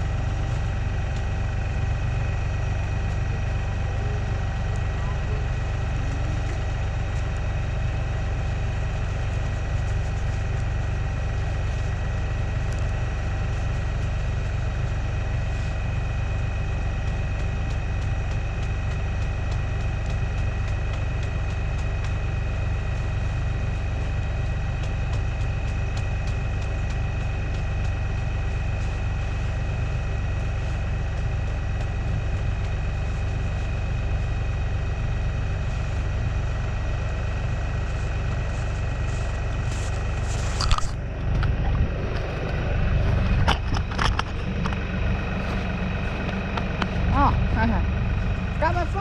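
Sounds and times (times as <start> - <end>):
constant engine whine: 0.0 - 49.0
diesel tractor engine idling: 0.0 - 49.0
sharp knocks and rustles: 37.8 - 47.0.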